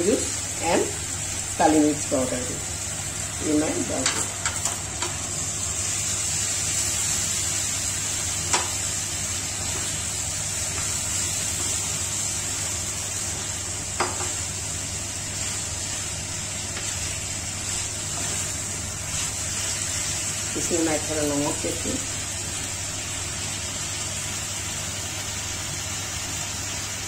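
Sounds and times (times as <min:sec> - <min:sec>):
chicken sizzling in a pan: 0:00.0 - 0:27.0
utensils knocking against pan: 0:04.0 - 0:05.2, 0:14.0 - 0:14.4
wooden spatula stirring: 0:15.2 - 0:20.6.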